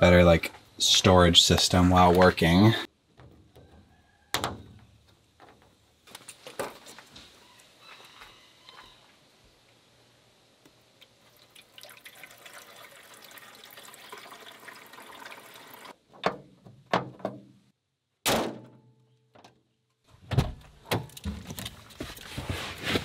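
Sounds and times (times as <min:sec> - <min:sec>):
water pouring from a plastic jug: 0:11.0 - 0:15.9.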